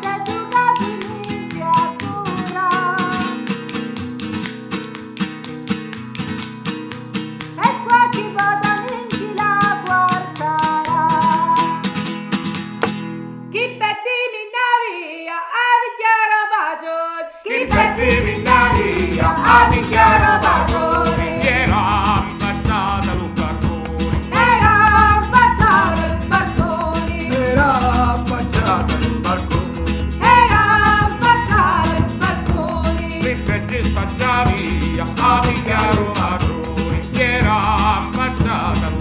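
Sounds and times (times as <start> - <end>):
person singing: 0.0 - 3.4, 16.9 - 39.0
bass and percussion: 0.0 - 13.0, 17.7 - 39.0
plucked acoustic guitar: 0.0 - 13.5, 17.6 - 39.0.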